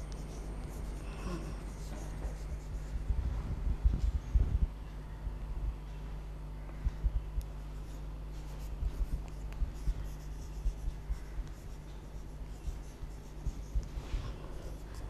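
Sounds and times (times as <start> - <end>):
chalk scratching on blackboard: 0.0 - 3.0, 7.8 - 15.0
steady low hum: 0.0 - 15.0.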